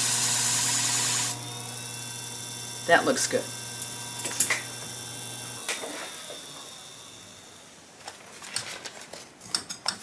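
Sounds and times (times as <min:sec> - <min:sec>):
sharpening machine motor hum: 0:00.0 - 0:07.9.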